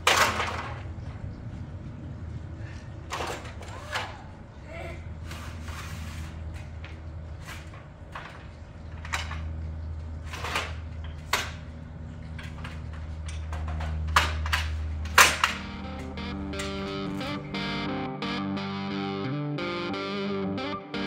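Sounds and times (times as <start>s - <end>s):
metal ladder knocking and clanking: 0.0s - 1.2s, 10.2s - 15.8s
low hum: 0.0s - 21.0s.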